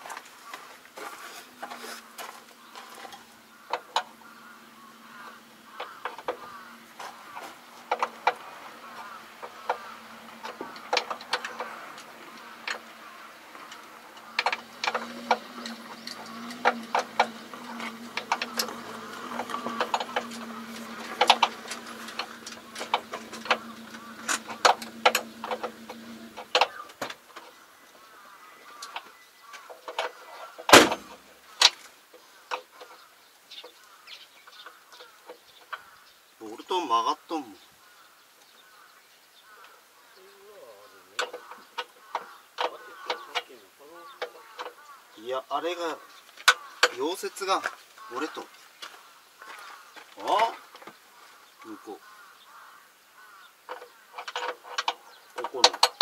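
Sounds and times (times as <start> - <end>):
low hum: 6.6 - 27.0
loud metal clang: 30.7 - 31.2.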